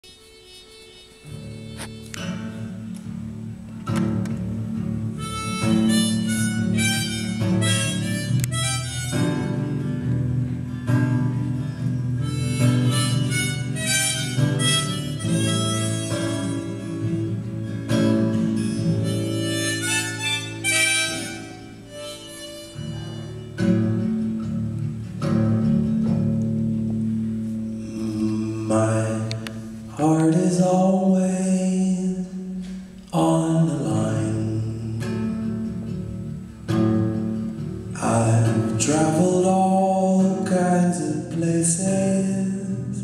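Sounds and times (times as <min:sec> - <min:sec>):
harmonica melody: 0:00.0 - 0:03.9, 0:04.6 - 0:26.7, 0:27.4 - 0:30.0
acoustic guitar chords: 0:00.0 - 0:43.0.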